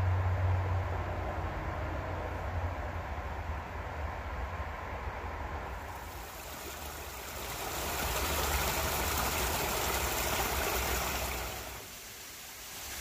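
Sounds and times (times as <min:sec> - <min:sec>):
waterfall rushing: 0:05.8 - 0:13.0.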